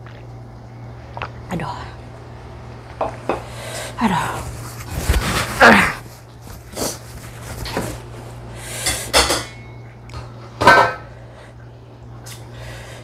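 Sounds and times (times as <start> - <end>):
person sniffing and hissing breaths: 6.7 - 7.2.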